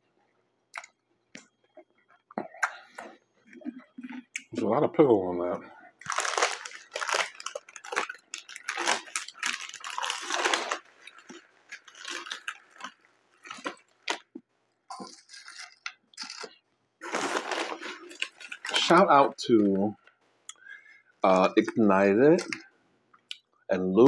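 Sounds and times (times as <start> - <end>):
person chewing with wet crunching: 0.7 - 4.5, 6.0 - 18.9
crinkly chip bag rustling: 6.0 - 14.3, 14.9 - 19.4.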